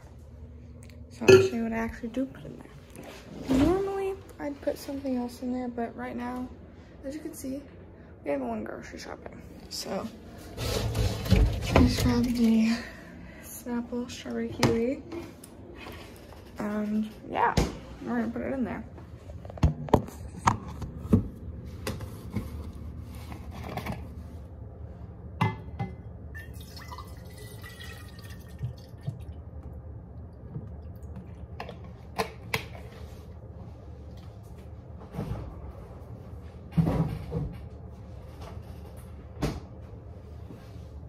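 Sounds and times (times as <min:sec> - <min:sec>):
steady low hum: 0:00.0 - 0:41.0
juice pouring into bottle: 0:26.4 - 0:29.4.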